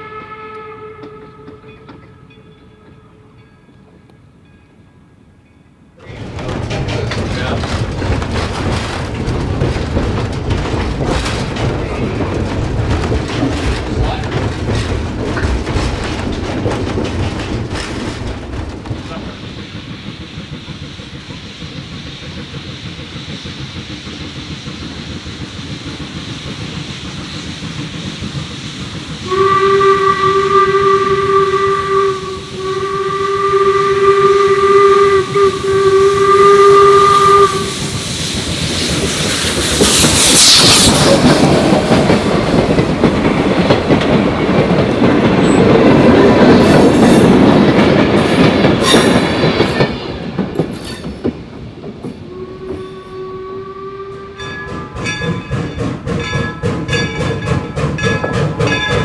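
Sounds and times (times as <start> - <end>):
steam whistle blasts: 0.0 - 1.7, 29.2 - 38.1, 52.3 - 55.0
train rumbling and clattering: 0.0 - 59.0
loud hiss of steam: 18.8 - 42.9.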